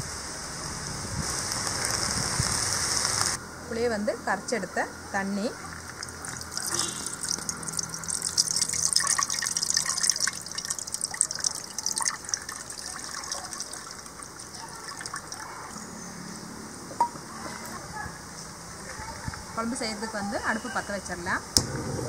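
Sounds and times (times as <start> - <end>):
water pouring into a pot: 5.7 - 15.7.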